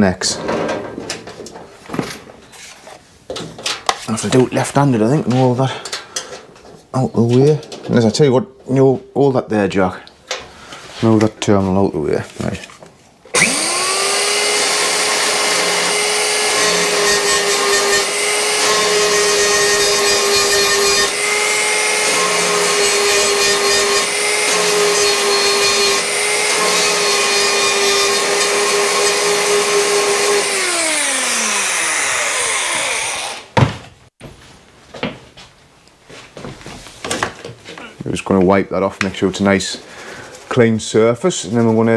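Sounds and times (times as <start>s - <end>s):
belt sander sanding metal: 13.4s - 33.6s.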